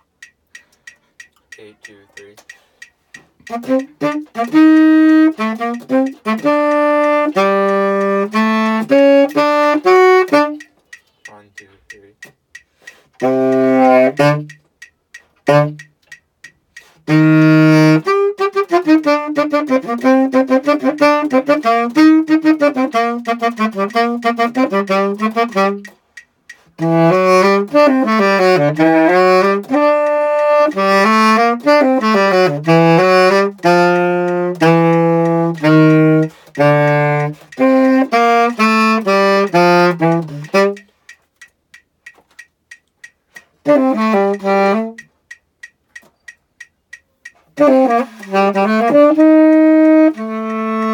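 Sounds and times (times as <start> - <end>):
tenor saxophone solo: 3.4 - 12.2, 13.2 - 14.6, 15.4 - 16.0, 16.8 - 26.0, 26.6 - 41.0, 43.4 - 45.1, 47.4 - 50.9.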